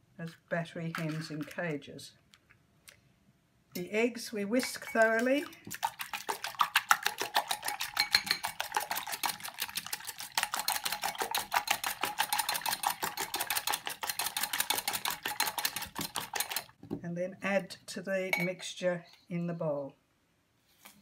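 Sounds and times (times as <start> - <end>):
whisk ticking against bowl: 4.6 - 16.8.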